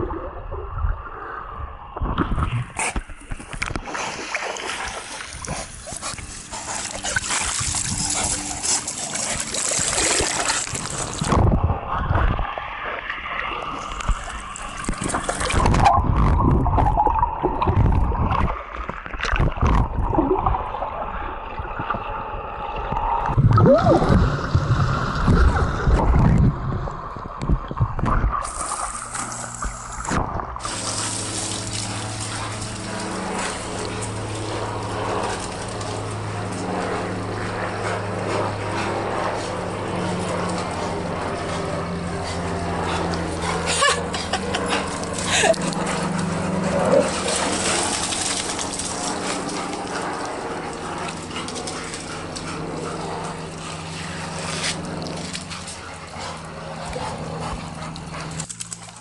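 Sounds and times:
muffled underwater splashing and bubbling: 0.0s - 43.7s.

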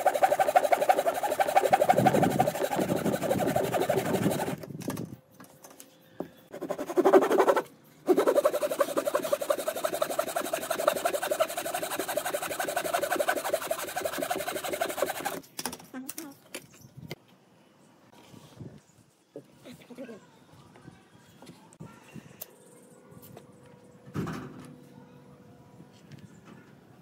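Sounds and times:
handsaw cutting wood: 0.0s - 4.6s, 6.5s - 15.4s.

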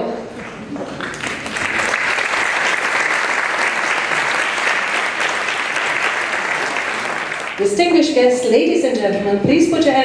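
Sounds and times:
audience applauding: 0.8s - 7.7s.

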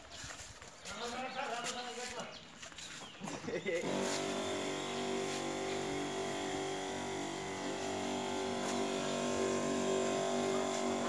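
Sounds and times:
electric pump humming: 3.7s - 11.0s
sprayer lance spraying: 3.7s - 11.0s.

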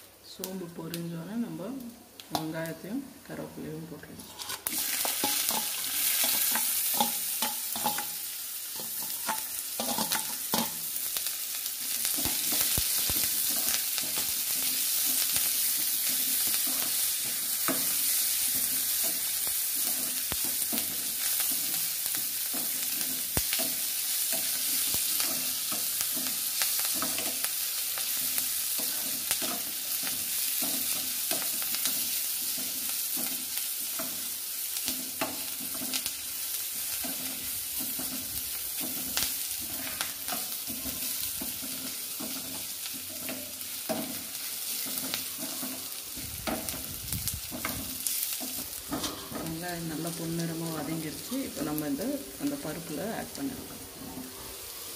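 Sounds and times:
vegetables sizzling in hot oil: 0.0s - 54.9s
steel spoon scraping pan: 4.2s - 8.2s, 47.5s - 49.5s.

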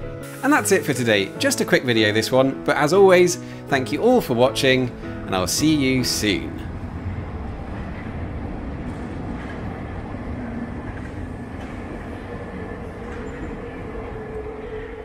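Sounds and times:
train wheels rumbling: 4.0s - 15.0s.

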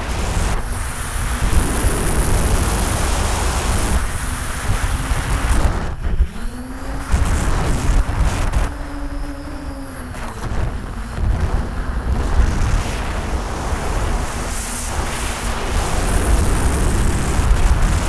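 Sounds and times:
drone motors whining: 0.0s - 18.0s.

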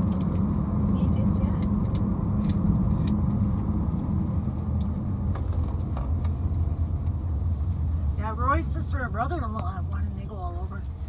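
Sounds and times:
car interior road rumble: 0.0s - 11.0s.

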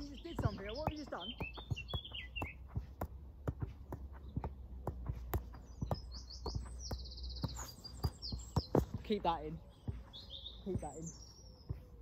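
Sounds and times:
bird trilling: 0.0s - 2.7s, 9.6s - 11.9s
ball tapping off foot: 0.0s - 12.0s.

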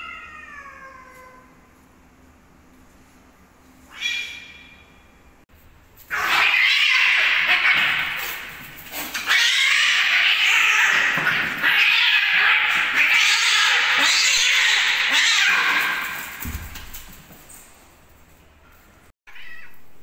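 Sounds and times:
cats fighting and yowling: 0.0s - 1.6s, 6.0s - 16.5s, 19.3s - 19.8s.

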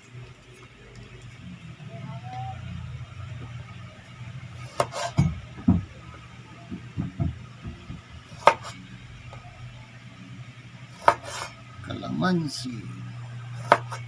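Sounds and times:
low hum: 0.0s - 14.0s
knife cutting on wooden board: 4.6s - 5.3s, 8.3s - 8.8s, 11.0s - 11.6s, 13.6s - 14.0s.

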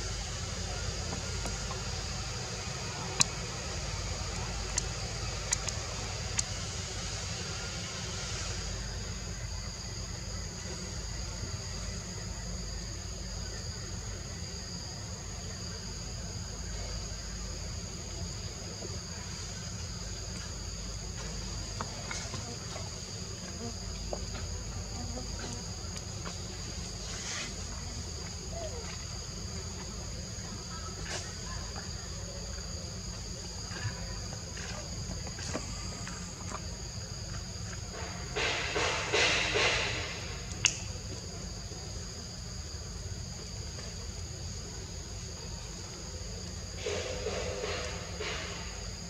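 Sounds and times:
insects droning: 0.0s - 49.0s
faint ticks: 4.7s - 6.6s.

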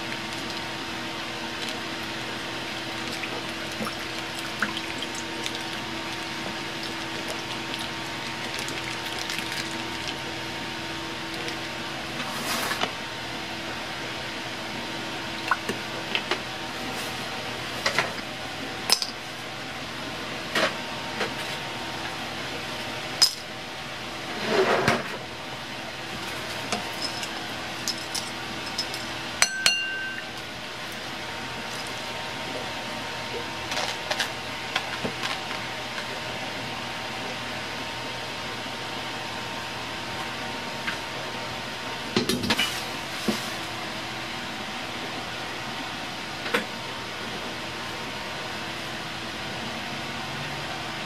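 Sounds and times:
clinks and knocks on ceramic bowl: 29.4s - 30.2s.

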